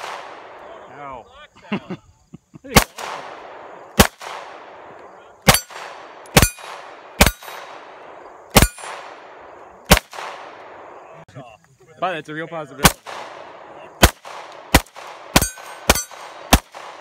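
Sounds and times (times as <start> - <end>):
pistol shots with echo: 0.0 - 0.8, 2.7 - 11.0, 12.8 - 17.0.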